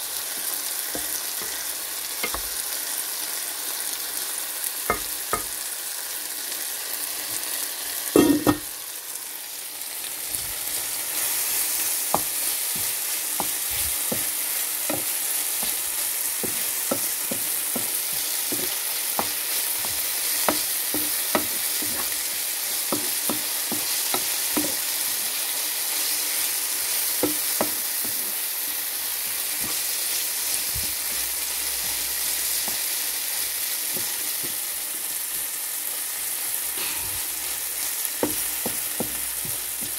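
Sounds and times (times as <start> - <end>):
vegetables sizzling in a frying pan: 0.0 - 39.9
wooden spatula tapping and scraping pan: 2.2 - 2.6, 11.5 - 24.9, 27.1 - 28.4, 29.2 - 33.0, 33.8 - 34.8, 38.1 - 39.9.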